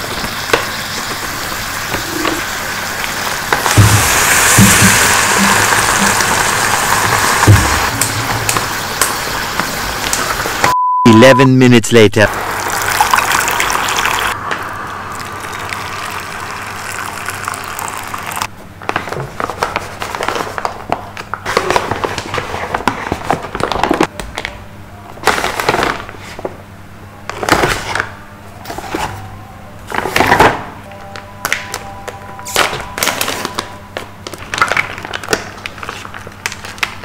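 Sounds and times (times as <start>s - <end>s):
steady hiss: 0.0s - 10.7s
plastic and foil packaging crinkling: 18.8s - 24.6s, 25.2s - 26.5s, 31.1s - 37.0s.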